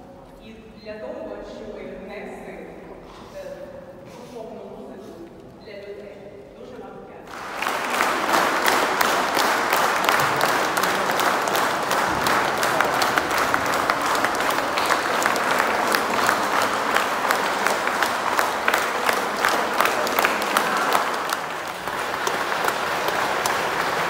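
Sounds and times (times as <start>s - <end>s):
congregation applauding: 7.3s - 24.0s.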